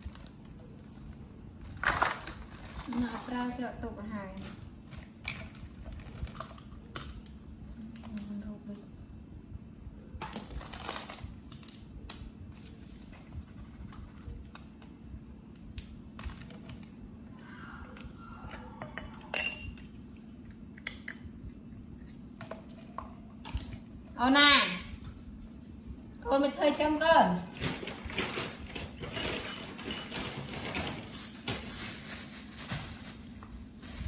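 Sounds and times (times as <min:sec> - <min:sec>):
rustling of small objects: 0:00.0 - 0:06.7, 0:27.5 - 0:34.0
steady low hum: 0:00.0 - 0:34.0.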